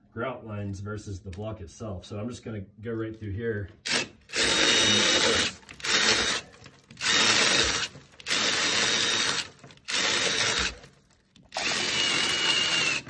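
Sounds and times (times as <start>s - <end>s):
cordless drill boring into wall: 3.8s - 13.0s.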